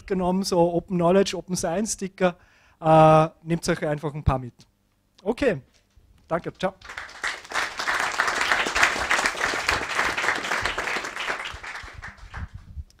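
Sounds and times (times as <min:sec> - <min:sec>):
audience applauding: 0:06.8 - 0:12.7.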